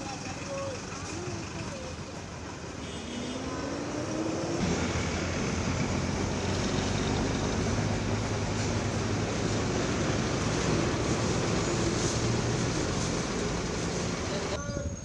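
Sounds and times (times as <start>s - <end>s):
steady traffic noise: 0.0s - 15.0s
vehicle engine speeding up: 3.3s - 14.5s.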